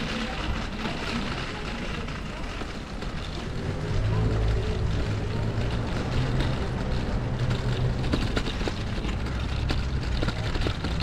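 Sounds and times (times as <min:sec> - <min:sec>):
street noise: 0:00.0 - 0:11.0
van engine humming: 0:02.3 - 0:11.0.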